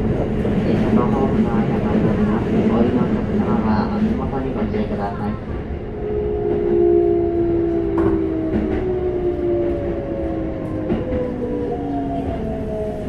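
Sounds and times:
train running rumble: 0:00.0 - 0:13.0
electric train inverter whining: 0:04.7 - 0:13.0.

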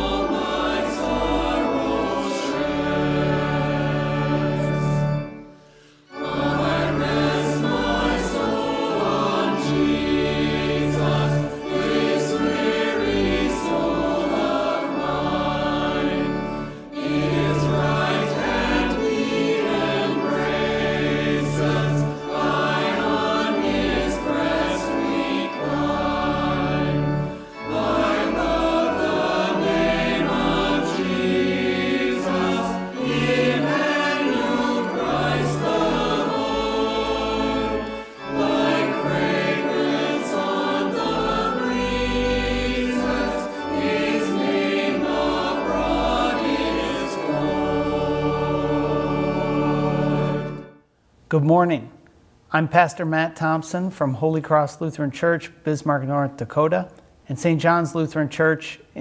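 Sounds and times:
choir singing a hymn: 0:00.0 - 0:50.8.

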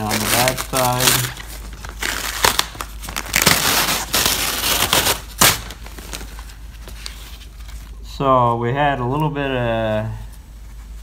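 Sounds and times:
peel ply ripping off laminate: 0:02.0 - 0:05.8.

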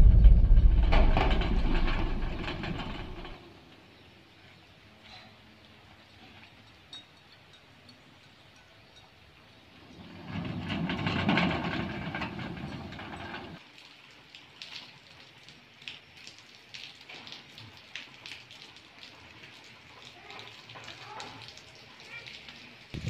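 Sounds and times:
steel sliding gate rumbling: 0:00.0 - 0:03.5, 0:09.8 - 0:13.6.

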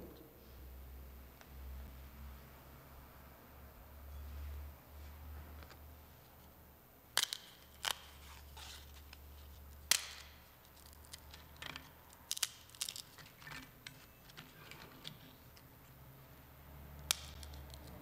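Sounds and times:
small clicks and crackles: 0:07.2 - 0:15.7, 0:17.0 - 0:18.0.

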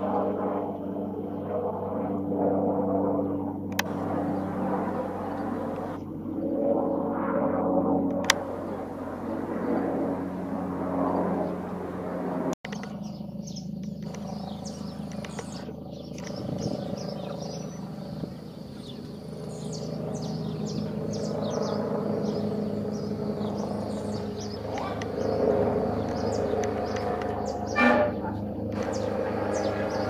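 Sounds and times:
distant helicopter drone: 0:00.0 - 0:30.0
birds chirping: 0:00.6 - 0:07.2, 0:08.3 - 0:30.0.

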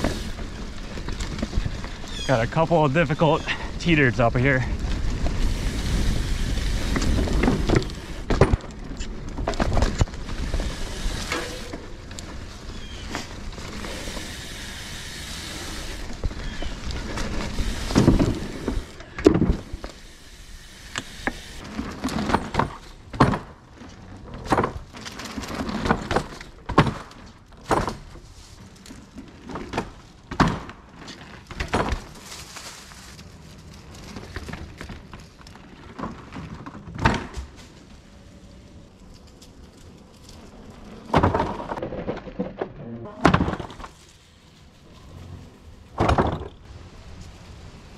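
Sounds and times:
low rumble of bike riding: 0:00.0 - 0:47.9
wooden thunks and knocks: 0:46.0 - 0:46.6.

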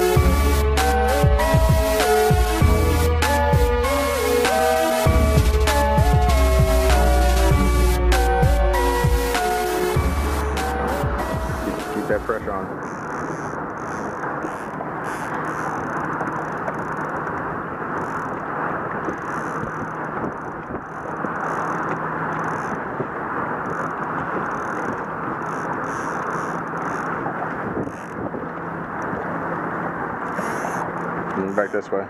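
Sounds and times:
wind buffeting microphone: 0:08.5 - 0:31.5.

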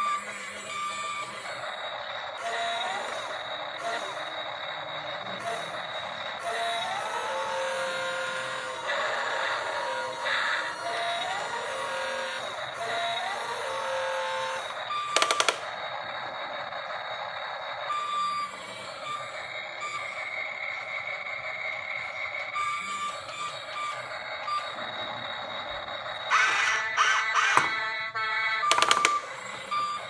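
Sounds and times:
buzzy toy engine sound: 0:00.0 - 0:30.0
sharp clicks: 0:15.1 - 0:15.7, 0:28.6 - 0:29.2
short beeps: 0:27.5 - 0:30.0.

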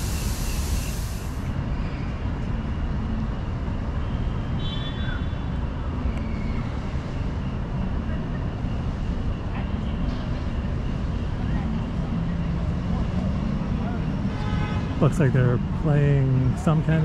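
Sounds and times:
mist jets hissing: 0:00.0 - 0:01.5
low rumble of city traffic: 0:00.0 - 0:17.0.

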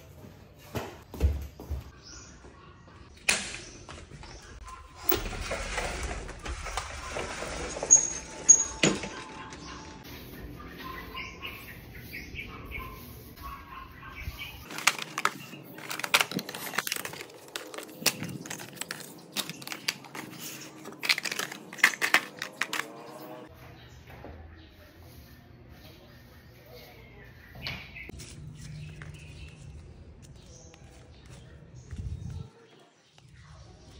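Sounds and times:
outdoor noise: 0:00.0 - 0:33.9
sliding glass door on track: 0:05.0 - 0:09.4
cardboard boxes handled and stacked: 0:14.7 - 0:22.9.

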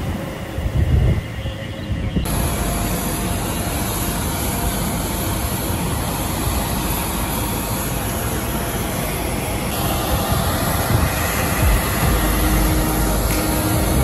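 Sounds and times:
jet aircraft drone: 0:00.0 - 0:14.0
hiss: 0:02.3 - 0:14.0
low rumble: 0:09.7 - 0:14.0.

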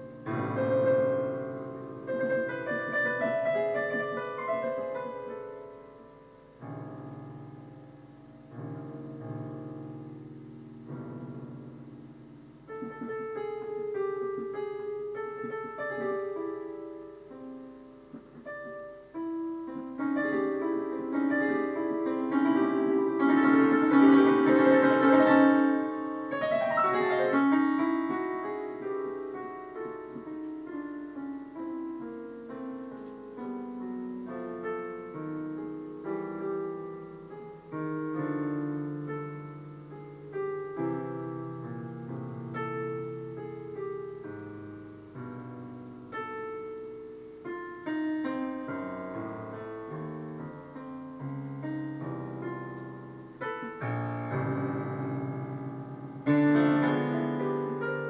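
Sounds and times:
digital piano improvisation: 0:00.0 - 0:58.0.

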